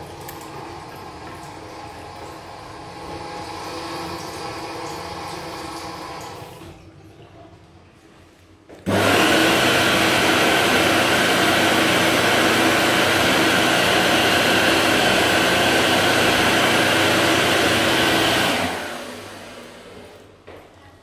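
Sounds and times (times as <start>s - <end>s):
electric hand dryer blowing: 8.9s - 20.3s.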